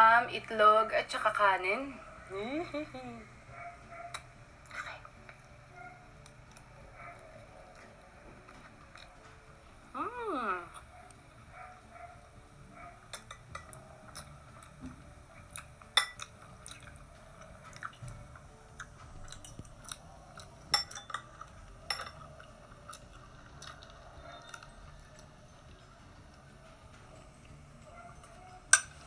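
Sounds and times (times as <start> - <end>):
close-up chewing: 3.6 - 9.6, 13.7 - 28.4
cutlery clinking on ceramic plates: 13.1 - 14.3, 16.0 - 16.3, 20.7 - 22.3.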